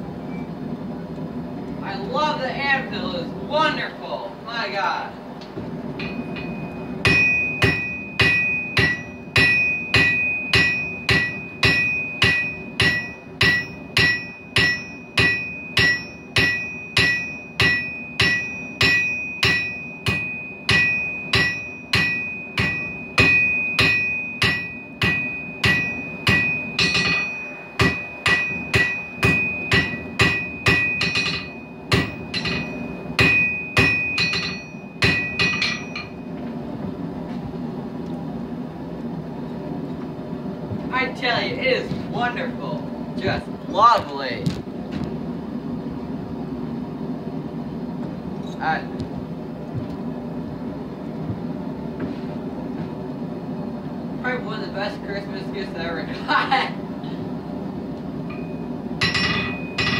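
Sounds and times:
hammer striking steel on anvil: 6.0s - 36.4s, 58.3s - 59.9s.

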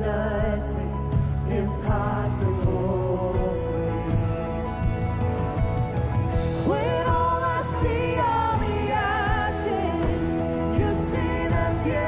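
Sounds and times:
woman singing: 0.0s - 4.1s, 6.6s - 12.0s
worship band music: 0.0s - 12.0s.

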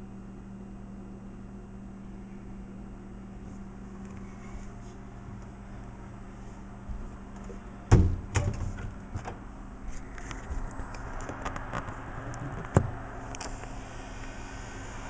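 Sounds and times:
low electrical hum: 0.0s - 15.0s
microwave door shutting thump: 7.9s - 9.4s.

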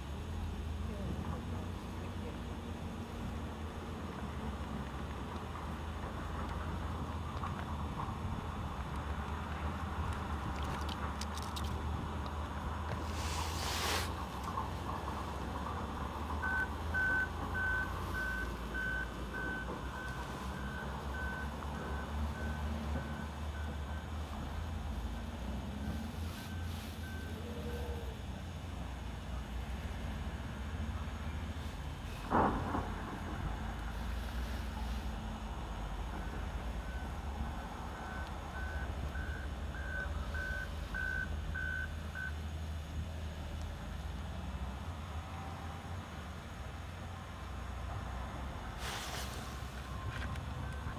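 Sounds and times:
vehicle backup alarm beeping: 16.0s - 28.1s, 36.1s - 42.5s, 49.8s - 50.9s.

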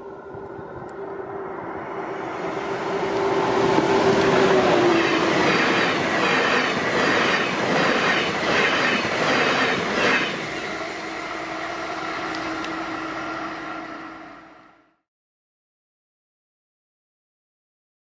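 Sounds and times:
rail running sound with low hum: 0.0s - 15.0s
train wheels clattering on track: 2.9s - 13.0s.

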